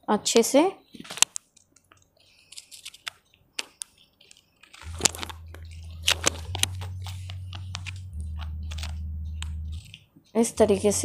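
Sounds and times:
low steady hum: 0:04.8 - 0:11.0.

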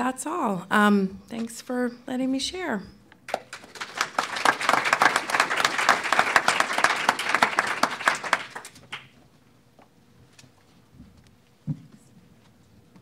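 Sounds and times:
audience applauding: 0:03.3 - 0:09.1.

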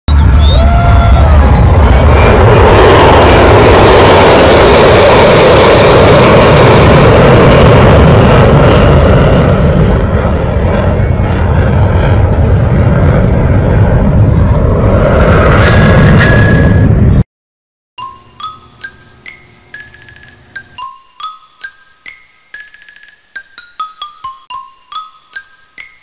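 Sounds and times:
fighter jet flying overhead: 0:00.1 - 0:17.2.

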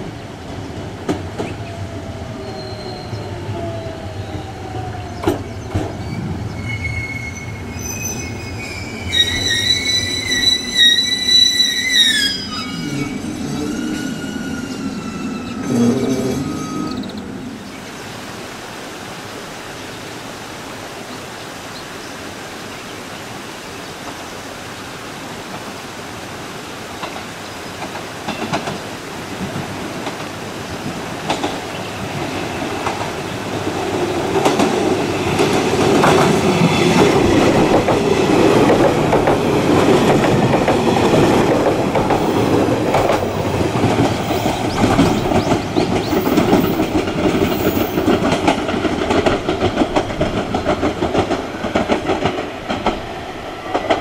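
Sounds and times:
electric train passing: 0:00.0 - 0:18.8, 0:27.0 - 0:54.0
train wheels squealing: 0:01.6 - 0:17.5.

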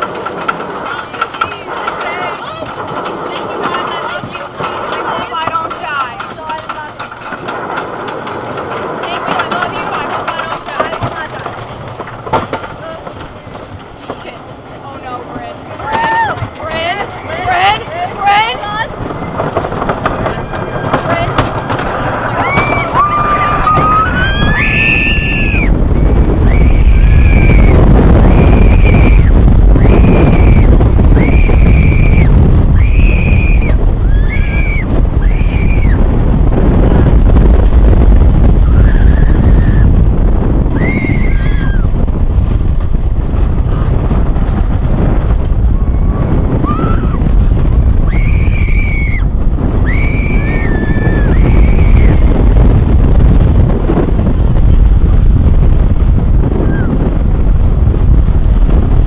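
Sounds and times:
roller coaster train roaring: 0:00.0 - 0:59.0
riders yelling: 0:15.8 - 0:18.8.

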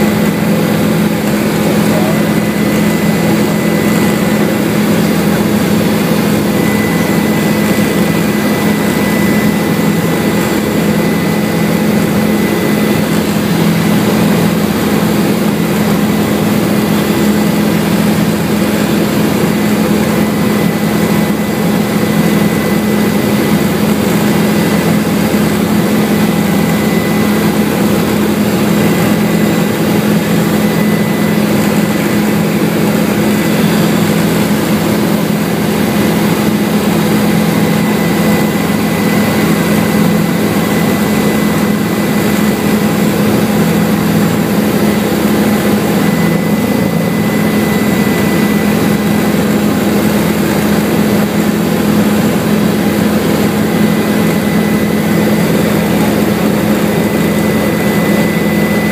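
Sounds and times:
helicopter engine and rotor drone: 0:00.0 - 0:58.9.

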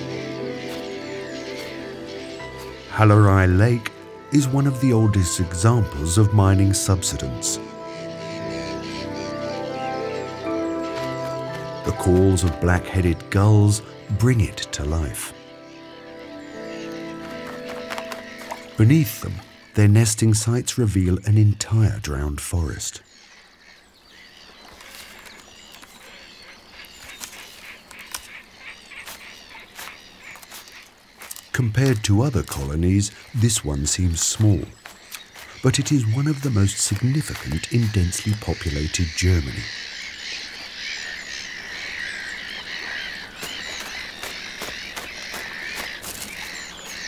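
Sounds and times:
gulls calling: 0:00.0 - 0:47.0.

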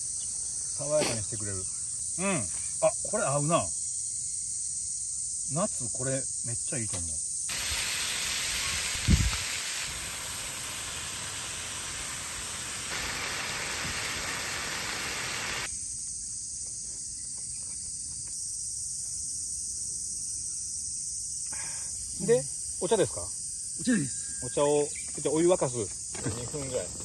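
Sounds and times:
food sizzling in a frying pan: 0:07.5 - 0:15.7.

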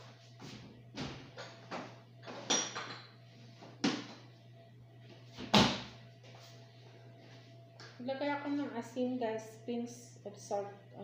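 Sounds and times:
kitchenware knocking and clinking: 0:02.3 - 0:03.1.

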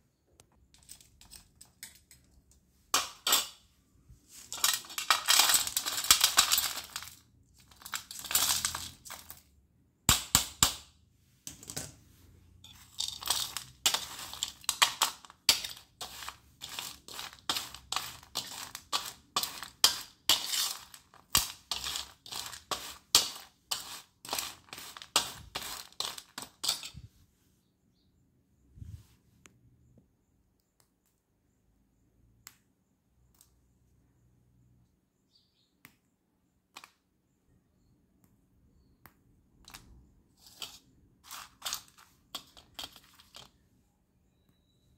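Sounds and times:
pencil pieces clattering on steel plate: 0:00.7 - 0:03.6, 0:04.3 - 0:09.5, 0:12.6 - 0:27.1, 0:40.4 - 0:43.6.

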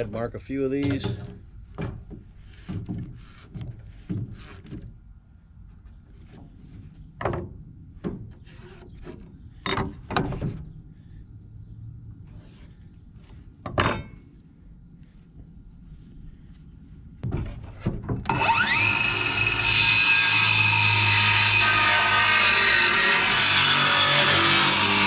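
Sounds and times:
wooden boards scraping: 0:00.9 - 0:05.0, 0:05.7 - 0:10.7.

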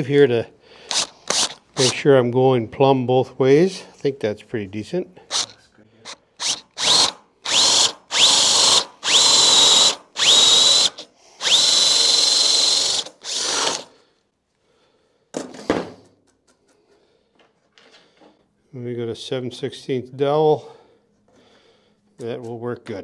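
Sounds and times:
cordless drill whining: 0:00.8 - 0:02.0, 0:05.3 - 0:14.0.

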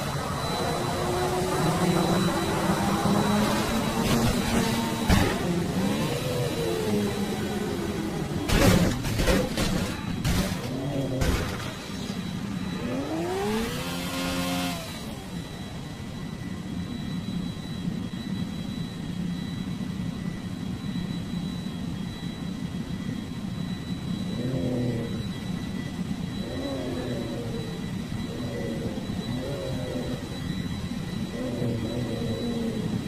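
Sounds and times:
rising-and-falling tone: 0:00.0 - 0:08.4.

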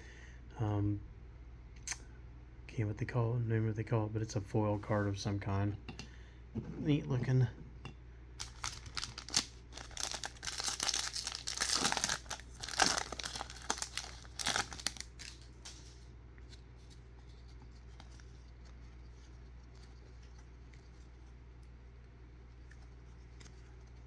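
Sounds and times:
wrapper tearing and crinkling: 0:08.4 - 0:15.8.

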